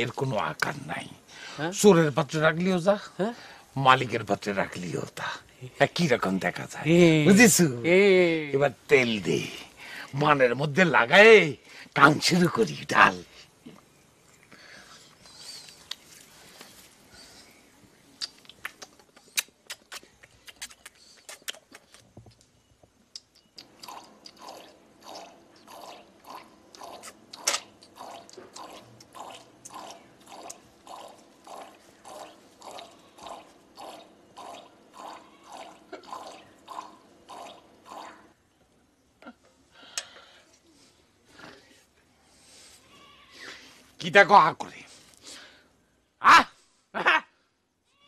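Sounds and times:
milk squirting into metal bucket: 23.8s - 38.2s.

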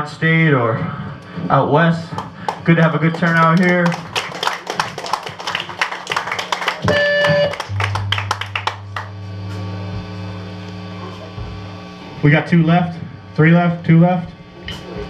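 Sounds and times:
people clapping: 2.1s - 9.3s
amplifier drone: 5.3s - 15.0s
electric guitar note: 6.6s - 14.6s.

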